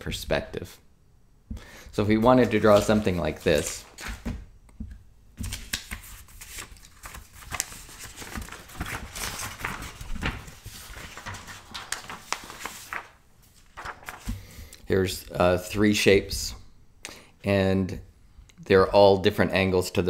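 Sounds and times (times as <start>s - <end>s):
paper rustling: 2.1s - 4.4s, 5.4s - 14.6s.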